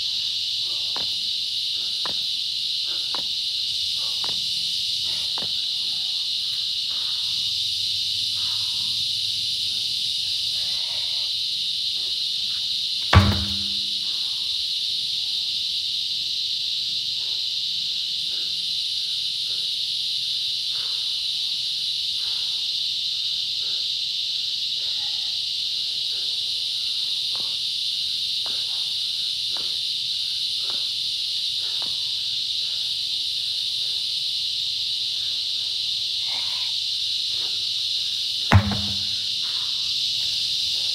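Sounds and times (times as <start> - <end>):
insect chorus: 0.0 - 40.9
heavy tire thump on ground: 13.1 - 14.3, 38.5 - 39.6.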